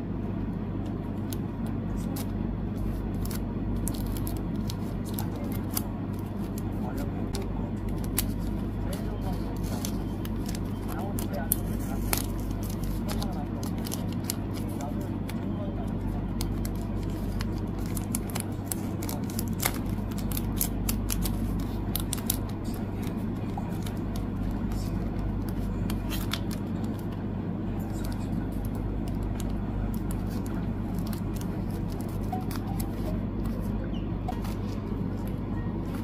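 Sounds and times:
plastic sleeves crinkling: 2.0s - 27.2s, 27.9s - 36.0s.

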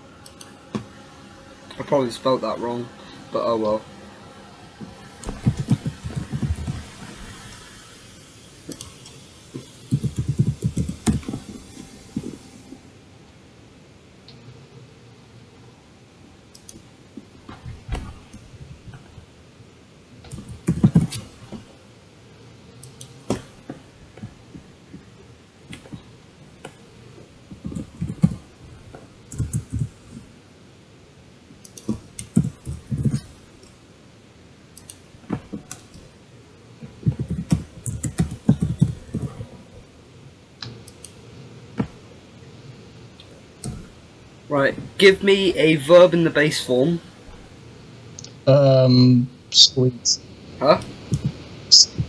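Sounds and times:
typing on computer keyboard: 5.2s - 6.8s, 9.9s - 11.5s, 29.3s - 29.9s, 37.0s - 39.4s.

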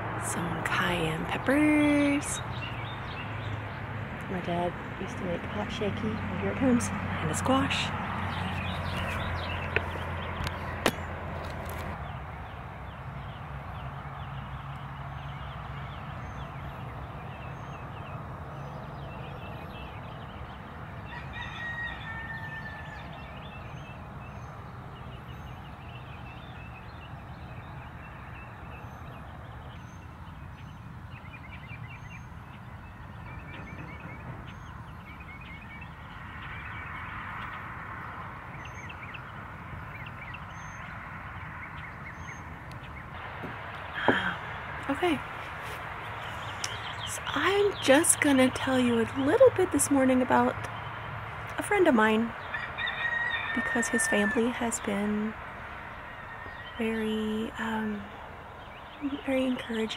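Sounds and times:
small birds chirping: 0.3s - 59.9s
rooster crowing: 21.1s - 23.2s, 52.5s - 54.7s.

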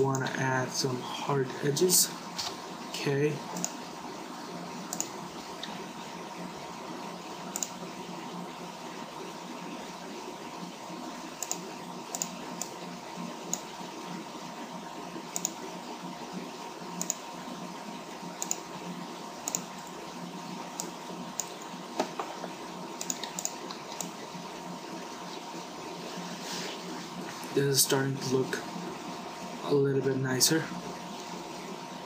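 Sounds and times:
background hum and hiss: 0.0s - 32.0s
computer mouse clicking: 3.5s - 3.8s, 4.9s - 5.8s, 7.5s - 7.8s, 11.4s - 12.8s, 13.4s - 13.7s, 15.3s - 15.6s, 17.0s - 17.2s, 18.4s - 18.6s, 19.4s - 20.0s, 20.8s - 22.2s, 23.0s - 24.2s.

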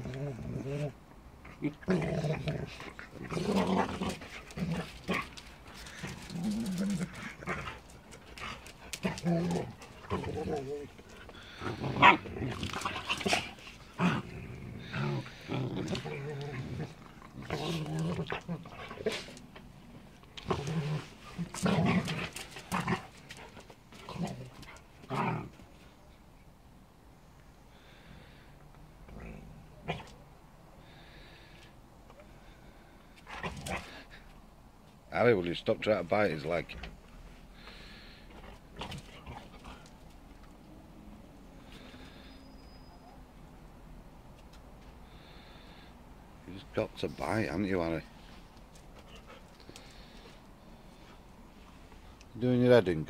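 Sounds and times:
dogs growling while play-fighting: 0.0s - 19.6s, 20.2s - 25.6s, 33.2s - 34.2s.

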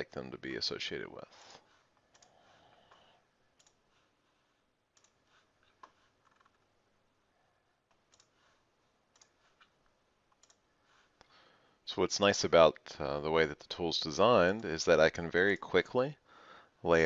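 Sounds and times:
faint computer mouse clicks: 5.0s - 5.2s.

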